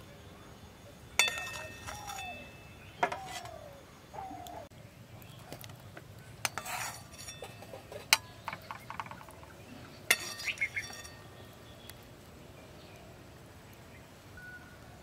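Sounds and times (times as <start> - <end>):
steel utensils clinking on pot: 1.2 - 3.6, 6.4 - 9.3, 10.1 - 11.3.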